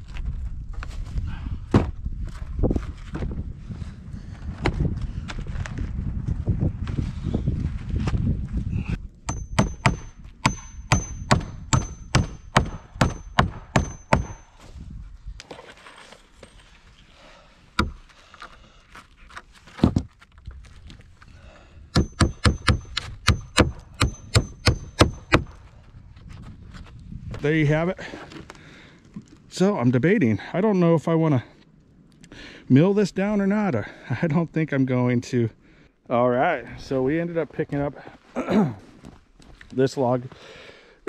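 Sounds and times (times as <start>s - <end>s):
hammer driving nails into wood: 9.3s - 14.5s, 21.9s - 25.6s.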